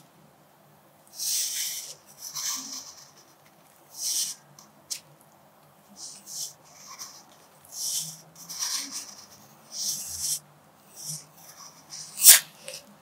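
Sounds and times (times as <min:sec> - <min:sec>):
pencil scratching on paper: 0:01.2 - 0:03.4, 0:04.0 - 0:04.5, 0:06.0 - 0:12.8.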